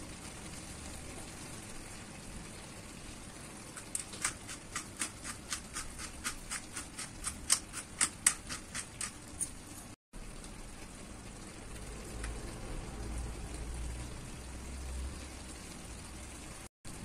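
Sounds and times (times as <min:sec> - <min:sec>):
pepper mill grinding and clicking: 0:03.8 - 0:09.6.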